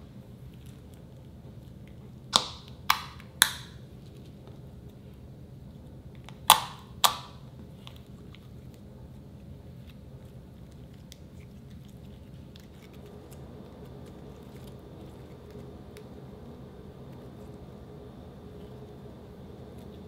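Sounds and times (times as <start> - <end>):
slime clicking and squishing: 0.5 - 4.3, 6.1 - 8.9
slime popping: 6.2 - 8.4.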